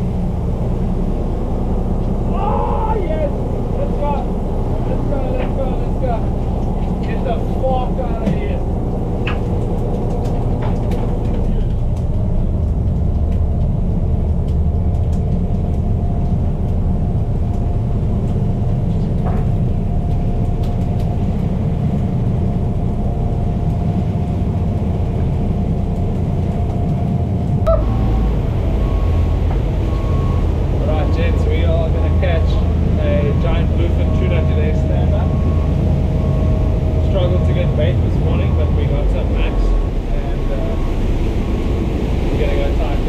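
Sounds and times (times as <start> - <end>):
boat engines rumbling: 0.0 - 43.0.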